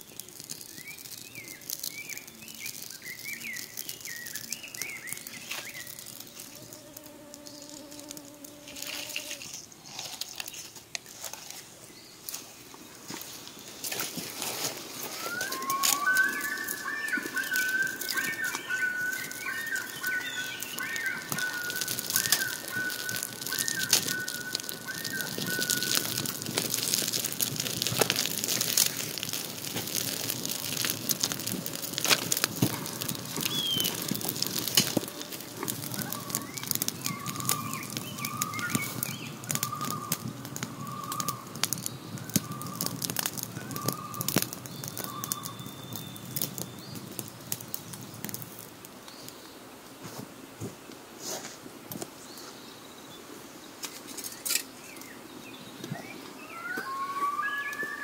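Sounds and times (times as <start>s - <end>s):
campfire crackling and popping: 0.0s - 50.0s
bird calling: 15.0s - 26.5s, 32.6s - 47.0s, 56.0s - 58.0s.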